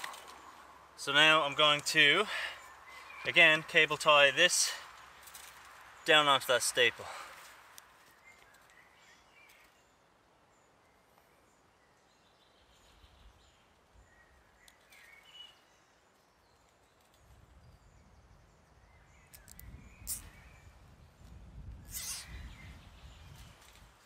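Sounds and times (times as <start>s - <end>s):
faint bird chirps: 8.0s - 23.8s.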